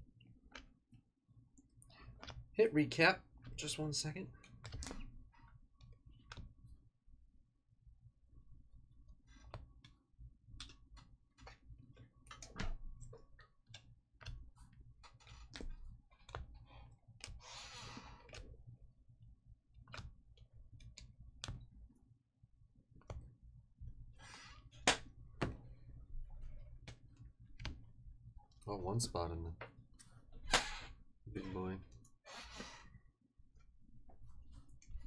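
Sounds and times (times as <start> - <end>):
faint clicks and taps: 4.3 - 6.9, 8.8 - 22.0, 22.9 - 24.1, 24.7 - 30.4.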